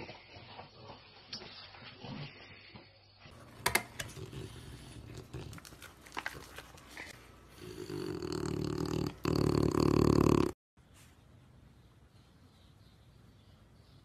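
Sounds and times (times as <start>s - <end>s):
dog growling: 4.1s - 5.8s, 7.5s - 10.6s.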